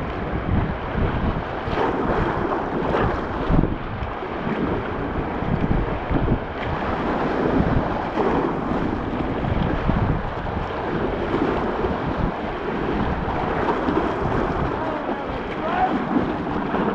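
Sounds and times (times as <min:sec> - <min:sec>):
wind gusting on microphone: 0:00.0 - 0:16.9
whitewater rapids rushing: 0:06.7 - 0:16.9.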